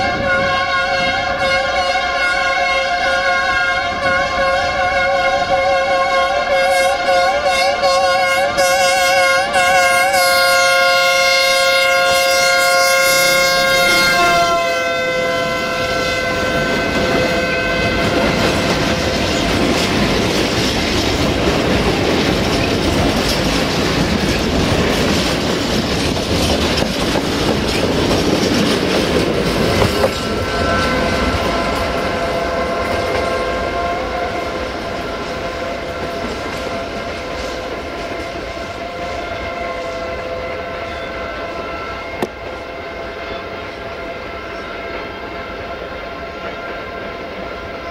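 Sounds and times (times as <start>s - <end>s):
locomotive horn: 0.0s - 20.2s, 29.4s - 47.9s
freight wagons rumbling and clattering: 18.0s - 33.3s.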